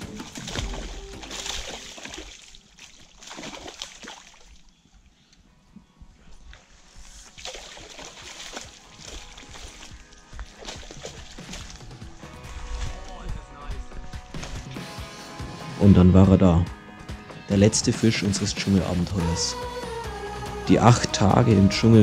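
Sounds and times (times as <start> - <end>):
fish thrashing and splashing: 0.0 - 4.8, 7.2 - 13.3.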